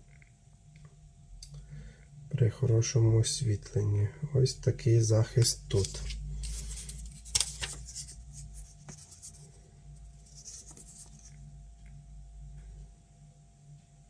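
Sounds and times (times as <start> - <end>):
faint steady hum: 0.0 - 14.0
paper rustling and scraping: 5.7 - 11.4.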